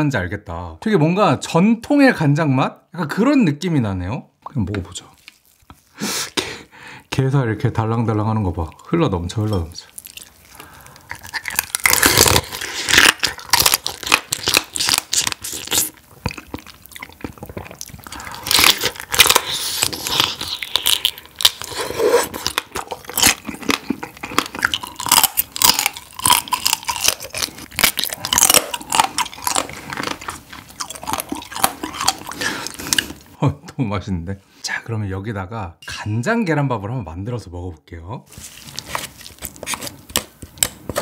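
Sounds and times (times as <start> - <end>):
crunchy wet chewing: 5.1 - 6.0, 9.5 - 33.4.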